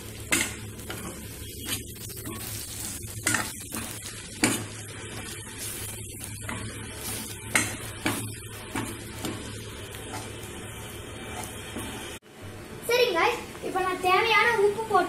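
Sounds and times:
masala sizzling in oil: 0.0 - 15.0
spatula knocking and scraping pan: 0.2 - 5.4, 6.3 - 10.4.

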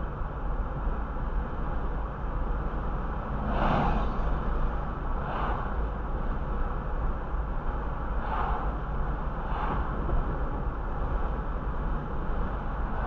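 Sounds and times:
car road and engine rumble: 0.0 - 13.0
vehicles whooshing past: 3.0 - 6.1.

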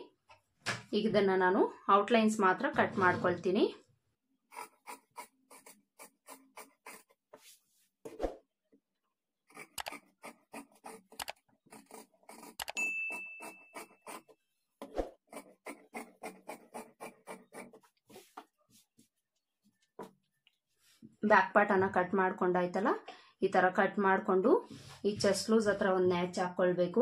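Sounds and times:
scissors snipping fabric: 4.5 - 7.2, 9.5 - 14.3, 15.3 - 17.8
high ding: 12.8 - 13.7.

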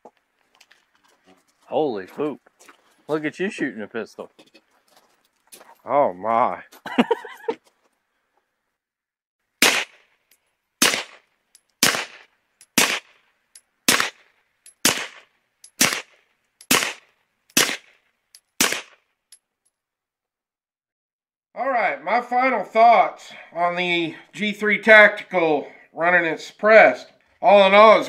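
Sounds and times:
suppressed pistol shots: 9.6 - 10.0, 10.8 - 11.2, 11.8 - 13.1, 13.9 - 14.2, 14.8 - 15.2, 15.8 - 18.0, 18.6 - 19.0.

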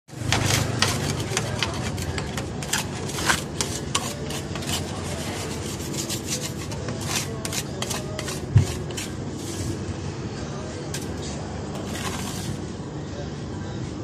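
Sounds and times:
metal scraper rasping frozen ice cream: 0.1 - 9.7, 11.8 - 12.6.

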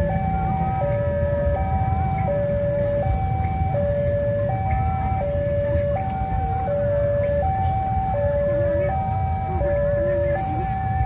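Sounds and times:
level crossing two-tone alarm: 0.0 - 11.0.

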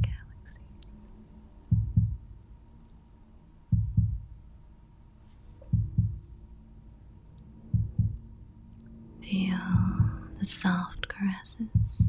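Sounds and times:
heartbeat double thumps: 1.7 - 2.3, 3.7 - 4.4, 5.7 - 6.3, 7.7 - 8.3, 9.5 - 10.4, 11.7 - 12.0.

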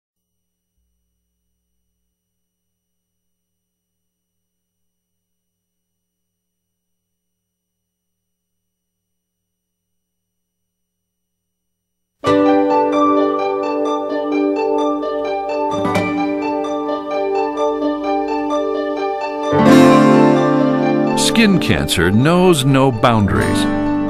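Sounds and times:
instrumental intro music: 12.2 - 24.0.

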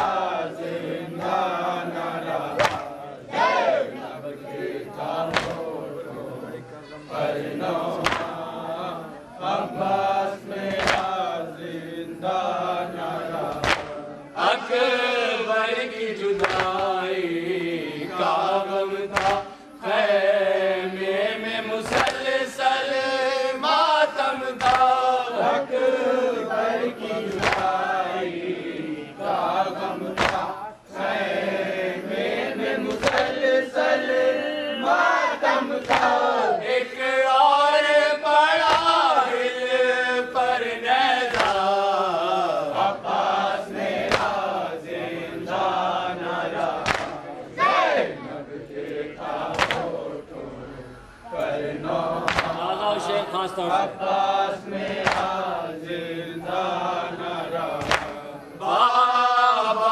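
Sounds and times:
men chanting a lament: 0.0 - 59.9
hands slapping chests: 2.5 - 3.0, 5.3 - 5.7, 7.9 - 8.4, 10.7 - 11.2, 13.5 - 14.0, 16.4 - 16.9, 19.1 - 19.6, 21.8 - 22.3, 24.6 - 25.0, 27.2 - 27.8, 30.1 - 30.6, 32.9 - 33.4, 35.8 - 36.2, 38.6 - 39.0, 41.2 - 41.8, 44.0 - 44.4, 46.7 - 47.2, 49.5 - 50.0, 52.2 - 52.6, 54.9 - 55.4, 57.8 - 58.3.

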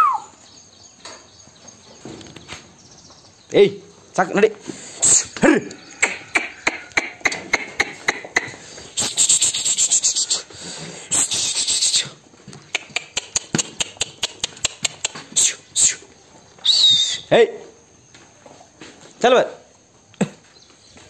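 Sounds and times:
sheep clicks and knocks: 5.7 - 8.6, 12.4 - 15.4.

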